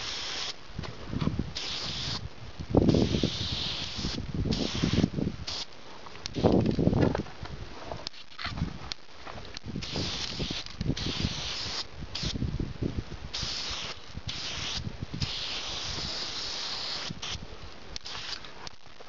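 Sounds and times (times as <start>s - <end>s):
spray paint can hissing: 0.0s - 0.6s, 1.5s - 2.2s, 2.9s - 5.7s, 9.8s - 12.4s, 13.3s - 17.4s, 18.0s - 18.5s.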